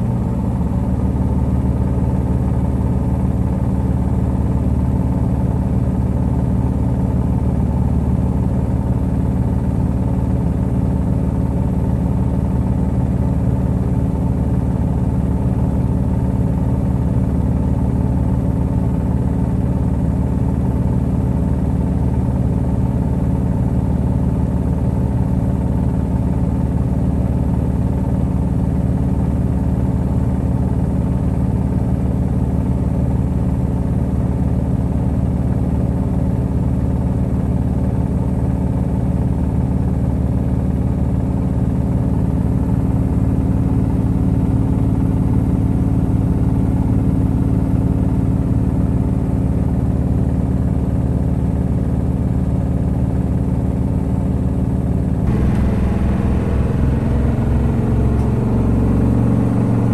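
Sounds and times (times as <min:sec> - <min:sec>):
washing machine spinning: 0:55.3 - 0:59.9.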